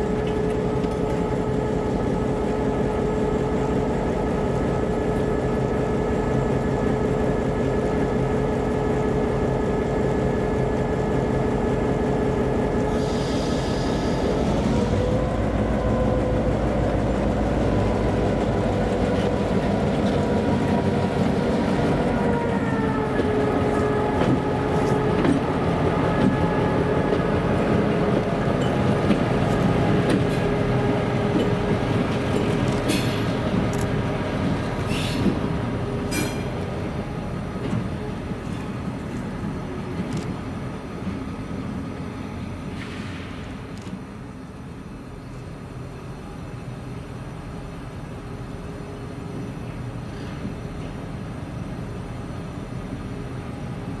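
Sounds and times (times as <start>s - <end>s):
diesel locomotive engine drone: 0.0s - 54.0s
brief air hiss: 12.9s - 14.5s, 34.9s - 35.3s, 42.7s - 43.6s.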